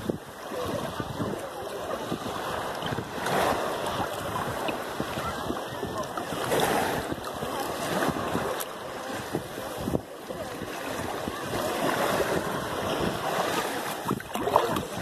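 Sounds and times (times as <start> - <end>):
sea water lapping: 0.0 - 15.0
wind buffeting microphone: 0.0 - 15.0.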